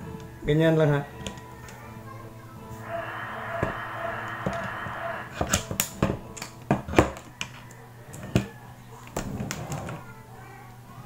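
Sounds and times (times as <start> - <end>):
steady hiss: 2.7 - 5.8.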